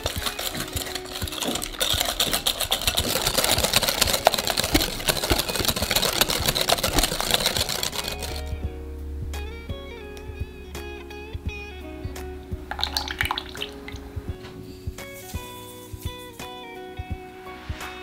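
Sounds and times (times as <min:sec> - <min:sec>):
whisk clattering in glass bowl: 0:00.0 - 0:08.5, 0:12.7 - 0:14.0.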